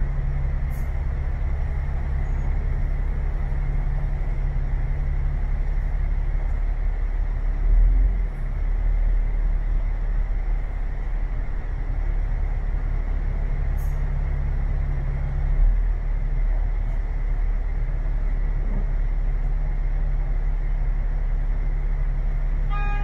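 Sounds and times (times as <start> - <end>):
bus engine and road rumble: 0.0 - 23.0.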